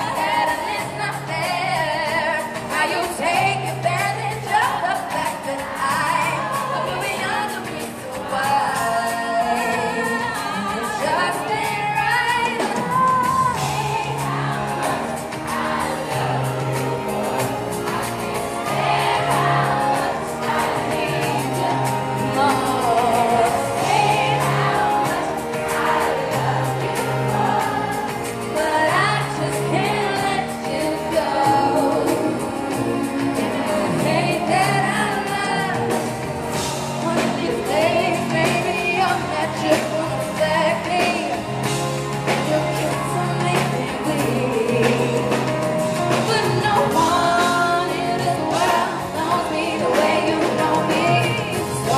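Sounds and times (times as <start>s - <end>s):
acoustic guitar: 0.0s - 51.9s
woman singing lead: 0.0s - 51.9s
backing vocals: 3.0s - 41.6s
repeating bass line: 12.8s - 30.6s.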